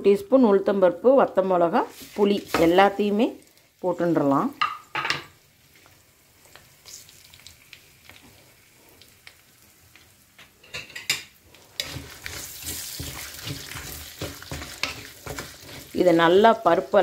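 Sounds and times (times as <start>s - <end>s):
food sizzling in oil: 1.4s - 17.0s
wooden spatula scraping pot: 1.9s - 3.0s, 11.6s - 16.6s.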